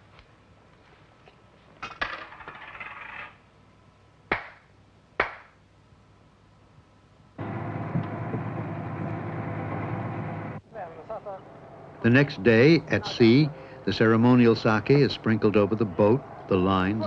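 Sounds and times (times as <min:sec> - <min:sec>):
sharp hand claps: 0:04.3 - 0:05.6.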